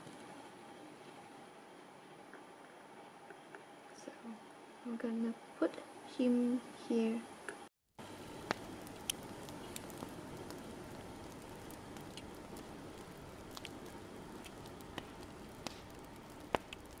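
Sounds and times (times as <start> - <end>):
fire crackling with pops: 8.0 - 17.0.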